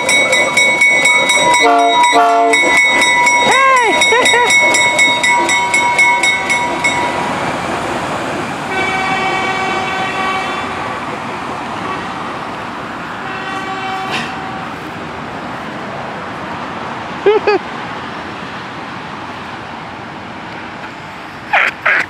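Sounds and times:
bell ringing: 0.0 - 7.6
train engine and cars rumbling: 0.0 - 22.0
locomotive horn blasts: 1.3 - 2.8, 8.7 - 10.9, 13.2 - 14.8.

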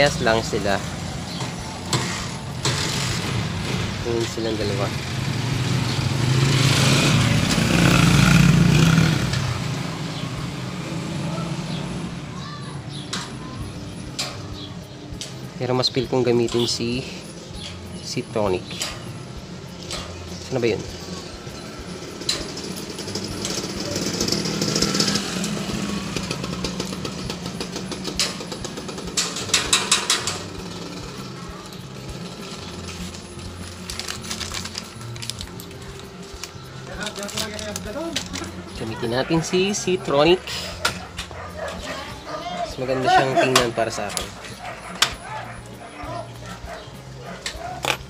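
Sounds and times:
vehicle engine passing by: 0.0 - 13.1, 20.4 - 33.4.

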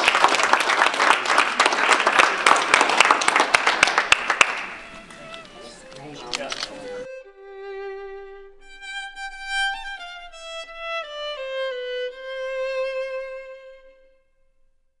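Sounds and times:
solo violin playing slow notes: 4.7 - 14.5.

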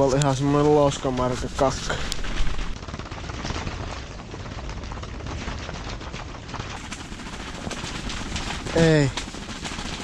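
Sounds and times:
low rumble: 0.0 - 4.2
tent fabric flapping in wind: 0.0 - 10.0.

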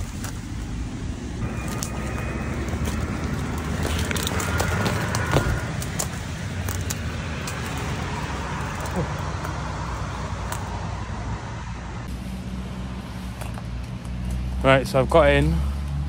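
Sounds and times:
undergrowth rustling and snapping: 0.0 - 0.8, 1.4 - 11.0, 13.0 - 14.6
road traffic: 0.0 - 16.0.

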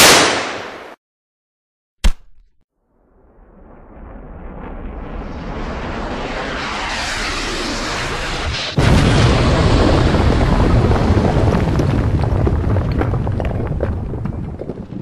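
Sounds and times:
rushing noise: 3.2 - 10.2
loud explosion boom rumbling: 8.7 - 15.0.

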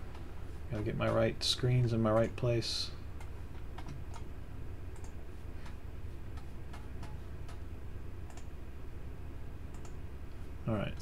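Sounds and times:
steady low hum: 0.0 - 11.0
mouse and keyboard clicks: 8.3 - 8.5, 9.7 - 10.0.

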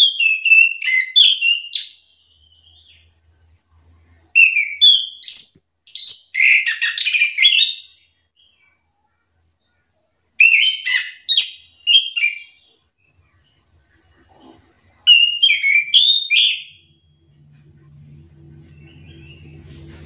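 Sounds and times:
faint low hum: 2.0 - 10.6, 11.7 - 20.0
thrush whistled song: 4.3 - 8.8, 10.4 - 13.3, 15.0 - 17.4, 18.4 - 20.0.

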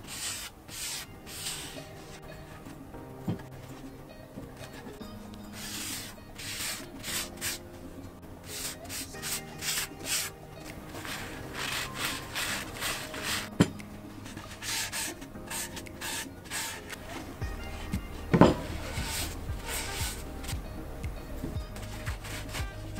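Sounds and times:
paper towel swishing on wood: 0.0 - 2.2, 11.0 - 13.5, 18.4 - 20.5.

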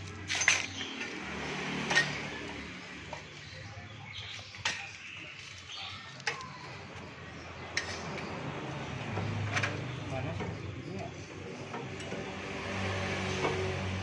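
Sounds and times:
metal tools clinking: 0.0 - 1.2.

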